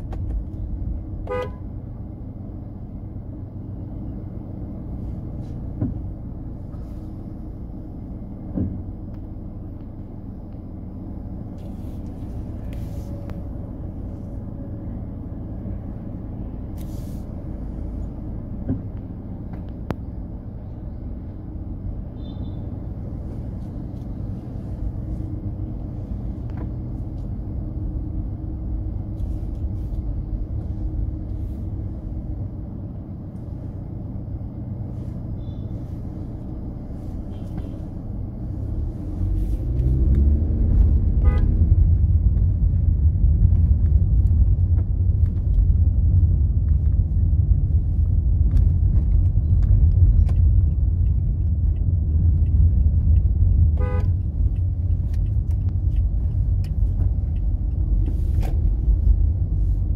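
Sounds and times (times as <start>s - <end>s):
street traffic rumble: 0.0s - 59.9s.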